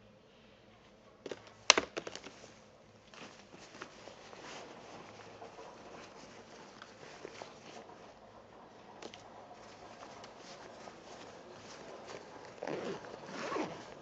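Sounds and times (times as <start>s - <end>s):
bags clacking and knocking: 1.2s - 2.5s, 9.0s - 14.0s
bag fabric rustling: 1.3s - 14.0s.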